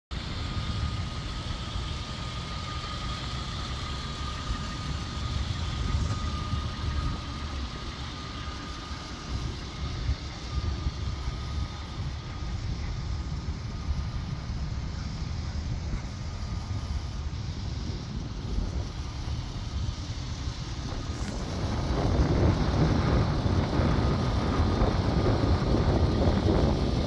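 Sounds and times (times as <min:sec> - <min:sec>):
engine idling: 0:00.1 - 0:27.0.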